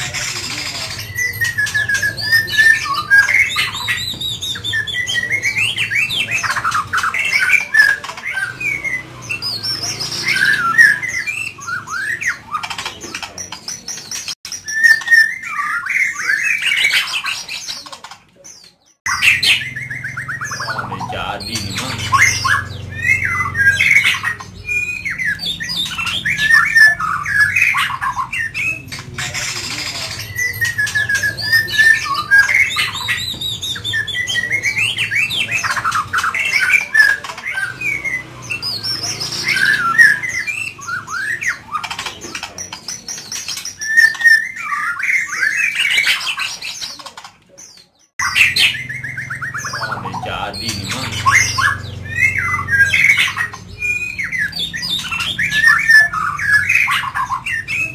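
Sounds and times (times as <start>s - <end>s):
bird singing whistled phrases: 14.0s - 17.4s, 47.8s - 57.9s.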